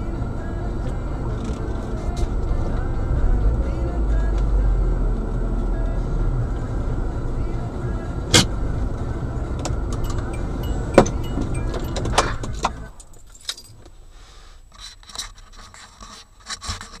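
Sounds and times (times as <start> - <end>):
car engine idling: 0.0 - 13.1
keys jangling: 11.0 - 13.9.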